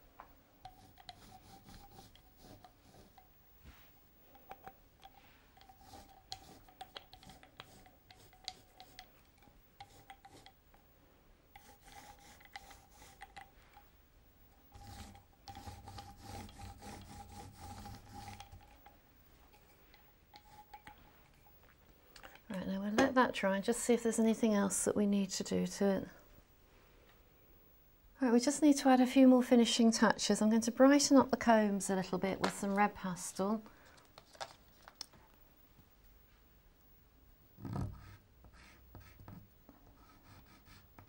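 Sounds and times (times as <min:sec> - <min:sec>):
foam roller rubbing on paper: 0:00.8 - 0:03.2, 0:05.8 - 0:08.9, 0:11.6 - 0:13.3, 0:14.7 - 0:18.7.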